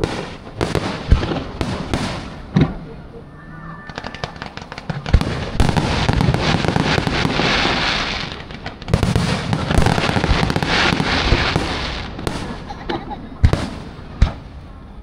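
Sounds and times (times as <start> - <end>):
fireworks deep booms: 0.0 - 2.8, 3.9 - 12.8, 13.4 - 14.6
fireworks crackling pops: 3.9 - 14.6.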